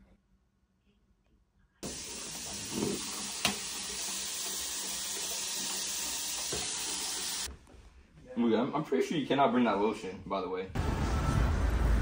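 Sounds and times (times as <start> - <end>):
tap water running over hands: 1.8 - 7.5.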